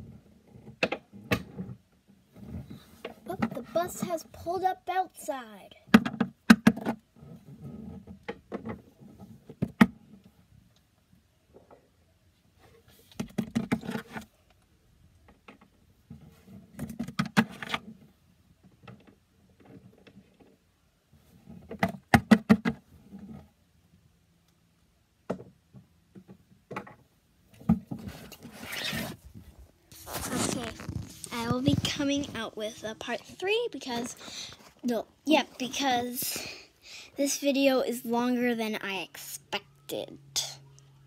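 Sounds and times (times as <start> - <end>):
rustling handling noise: 27.5 - 37.4.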